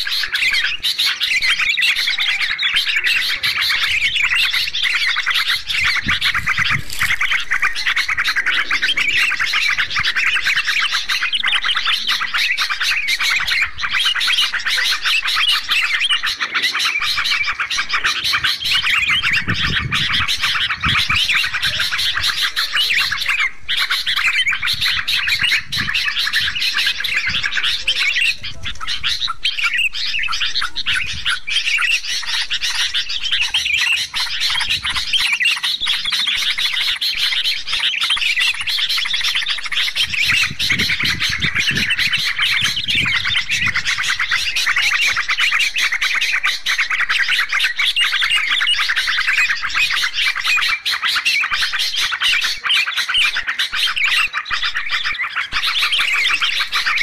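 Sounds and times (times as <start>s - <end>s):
bulbuls chattering and calling: 0.0s - 57.0s.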